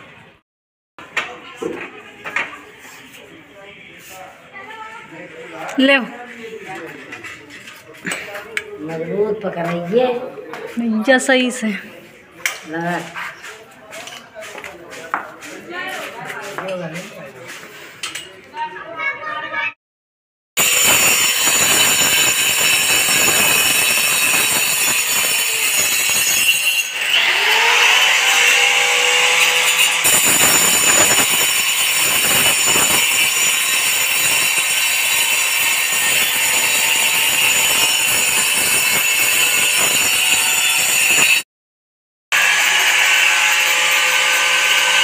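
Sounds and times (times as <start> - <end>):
electric drill boring into ceiling: 20.6 - 41.4, 42.4 - 45.0.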